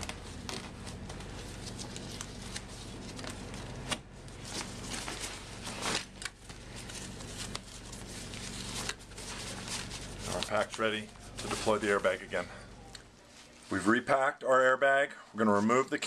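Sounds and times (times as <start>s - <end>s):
backpack fabric rustling: 6.7s - 12.4s.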